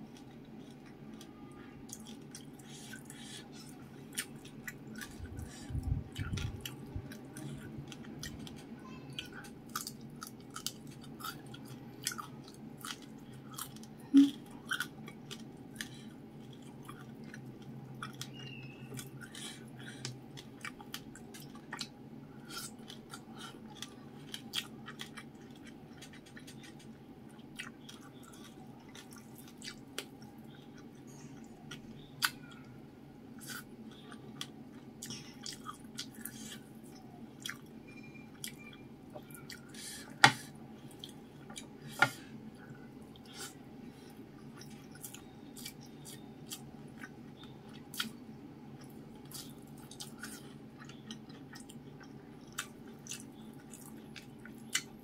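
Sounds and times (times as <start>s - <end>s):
crunchy chewing: 0.0s - 32.7s, 33.4s - 55.0s
low steady hum: 0.0s - 55.0s.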